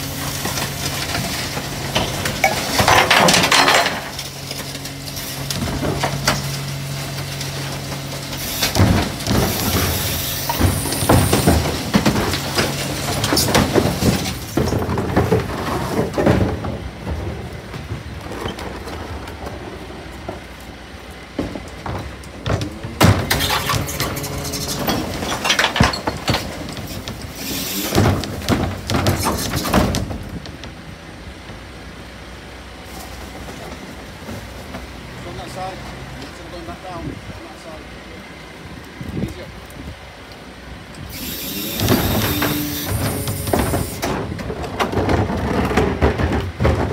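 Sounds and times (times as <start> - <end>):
truck engine and hydraulics hum: 0.0 - 46.9
garbage clattering into truck: 0.2 - 19.5, 21.3 - 30.7, 41.8 - 46.9.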